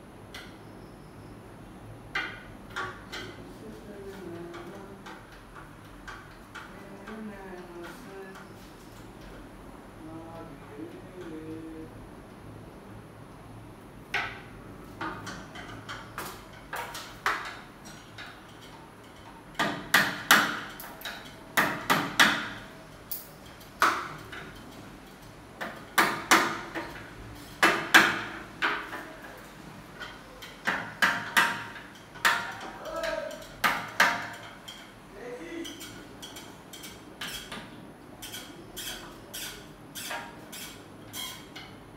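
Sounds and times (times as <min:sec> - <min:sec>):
hammer striking metal frame: 0:19.5 - 0:22.6, 0:25.6 - 0:29.1, 0:30.0 - 0:34.9.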